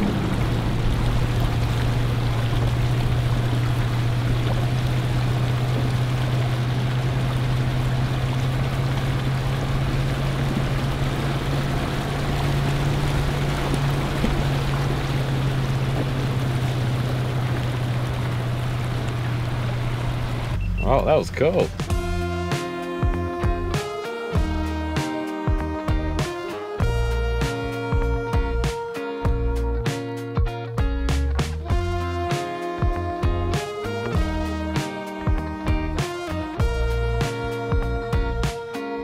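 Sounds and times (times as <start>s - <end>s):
water splashing around tyres: 0.0s - 22.1s
engine humming low: 0.0s - 39.0s.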